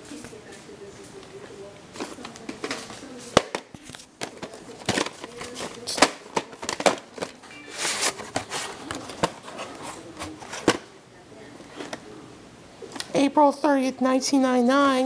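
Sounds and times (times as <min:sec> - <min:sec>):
plastic rustling: 0:01.9 - 0:10.9
plastic cases clacking: 0:02.0 - 0:10.9.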